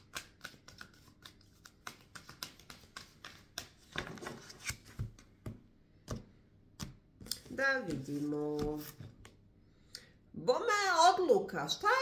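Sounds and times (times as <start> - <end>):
cards being shuffled: 0.0 - 5.3, 6.8 - 9.4.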